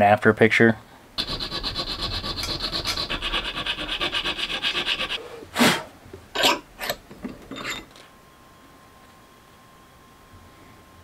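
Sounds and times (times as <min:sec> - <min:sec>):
file rasping on metal: 0:01.2 - 0:05.2.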